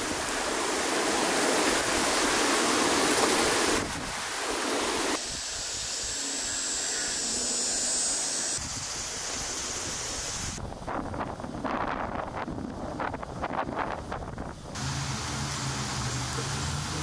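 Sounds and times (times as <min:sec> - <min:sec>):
floodwater rushing from culvert: 0:00.0 - 0:05.2, 0:14.7 - 0:17.0.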